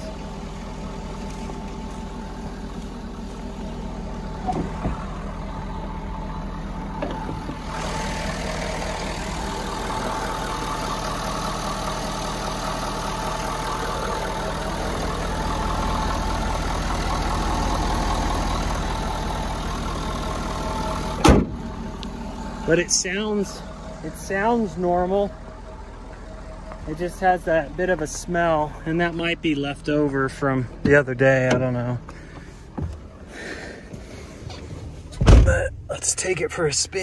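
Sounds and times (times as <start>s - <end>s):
diesel engine idling: 0.0s - 37.0s.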